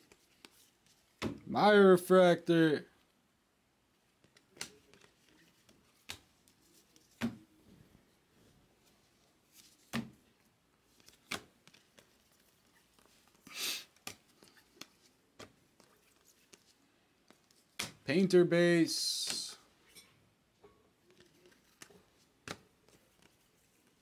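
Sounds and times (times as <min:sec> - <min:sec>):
papery rustle of cards: 0:00.0 - 0:01.2, 0:04.2 - 0:07.3, 0:10.8 - 0:17.9, 0:21.1 - 0:24.0
cards snapping off a stack: 0:11.0 - 0:11.8, 0:21.6 - 0:22.7.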